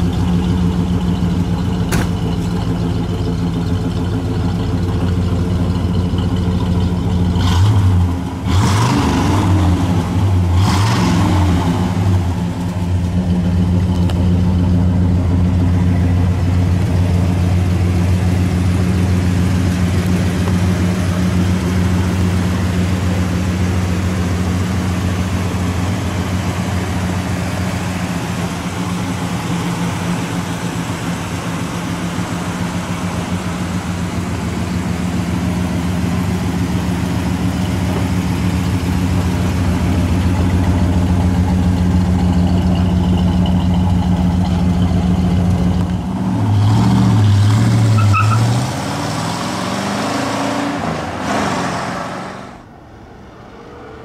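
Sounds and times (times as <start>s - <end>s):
car engine idling and revving: 0.0s - 54.0s.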